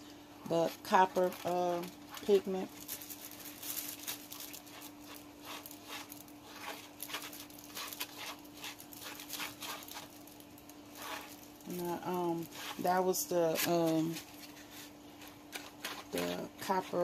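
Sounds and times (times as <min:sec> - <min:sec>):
faint steady hum: 0:00.0 - 0:17.0
plastic spoon scraping bowl: 0:04.6 - 0:10.2, 0:10.9 - 0:17.0.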